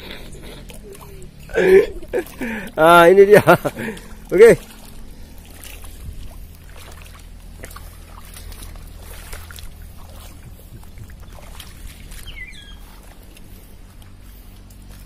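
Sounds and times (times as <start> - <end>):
low rumble: 0.0 - 15.0
small clicks and wet crackles: 3.6 - 15.0.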